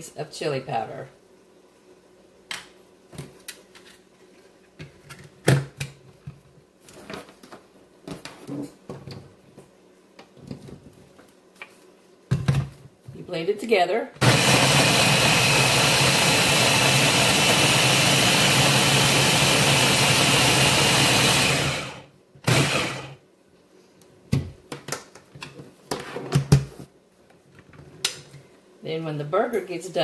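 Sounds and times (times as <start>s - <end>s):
blender motor running: 14.2s - 23.2s.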